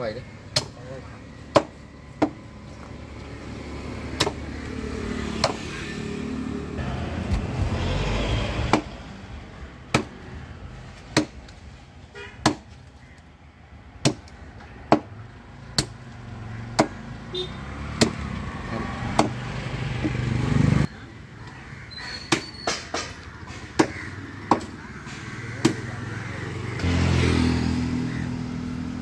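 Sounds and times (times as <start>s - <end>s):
motor vehicle passing: 0.4s - 11.0s, 15.2s - 21.0s, 23.1s - 29.0s
cleaver chopping on wooden block: 1.5s - 2.4s, 4.1s - 4.5s, 5.4s - 5.6s, 8.7s - 9.0s, 9.9s - 10.2s, 11.1s - 11.4s, 12.4s - 12.8s, 14.0s - 15.1s, 16.8s - 17.0s, 18.0s - 18.3s, 19.0s - 19.4s, 22.3s - 24.8s, 25.6s - 25.9s.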